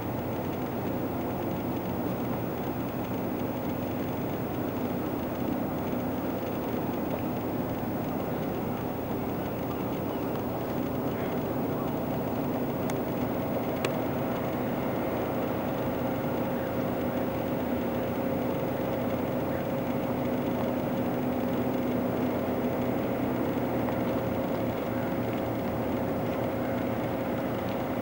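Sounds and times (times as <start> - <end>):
engine droning steadily: 0.0 - 28.0
light clicks: 2.6 - 14.6.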